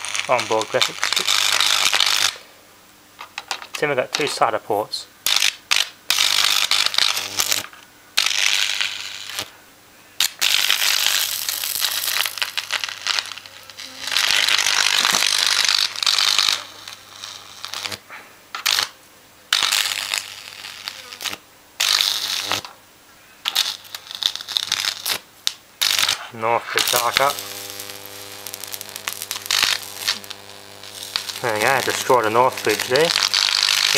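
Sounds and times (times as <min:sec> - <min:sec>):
electric arc crackling: 0:00.0 - 0:02.5, 0:03.2 - 0:09.6, 0:10.2 - 0:22.8, 0:23.4 - 0:33.9
steady low hum: 0:25.7 - 0:33.9.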